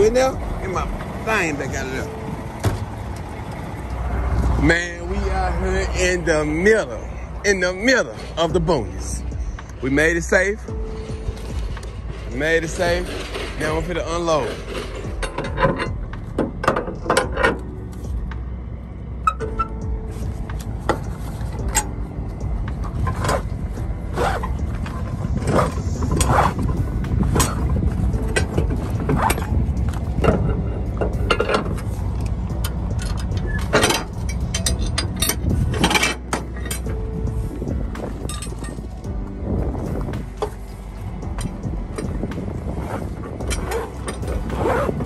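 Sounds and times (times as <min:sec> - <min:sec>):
low rumble: 0:00.0 - 0:45.0
winch ratchet clicks and clanks: 0:27.4 - 0:37.0.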